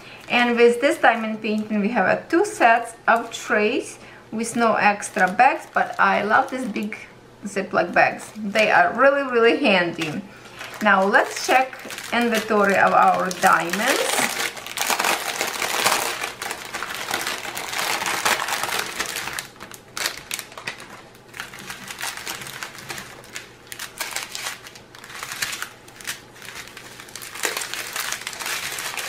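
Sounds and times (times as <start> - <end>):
plastic bags crinkling: 4.5 - 7.0, 9.9 - 29.0.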